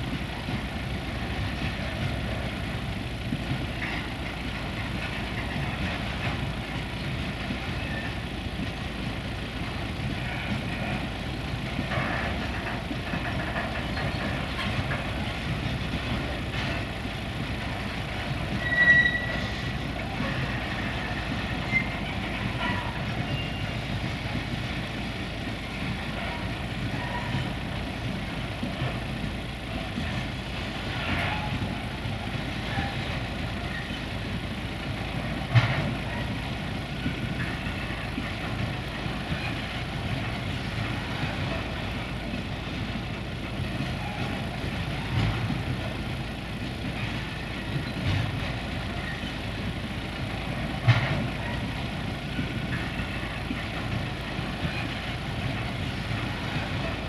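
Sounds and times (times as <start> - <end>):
freight train wheels on rails: 0.0 - 57.0
high-pitched wheel squeal: 18.6 - 19.7.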